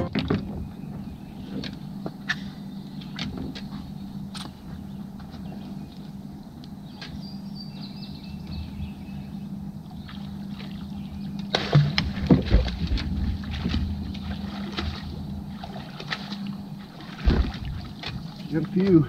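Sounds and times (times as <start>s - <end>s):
steady low hum: 0.0s - 19.0s
sharp knocks and splashes: 11.4s - 19.0s.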